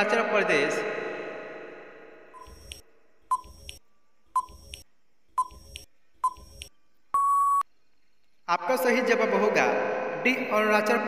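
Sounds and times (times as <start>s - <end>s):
short electronic beeps: 3.3s - 3.8s, 5.4s - 7.7s
long steady beep: 7.1s - 7.7s.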